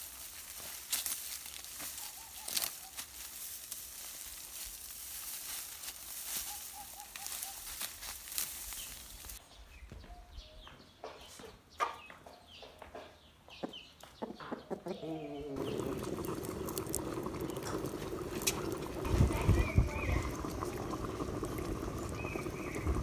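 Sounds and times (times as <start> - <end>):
dry stalks crackling and rustling: 0.0 - 9.4, 15.6 - 23.0
rooster clucking softly: 14.2 - 16.0.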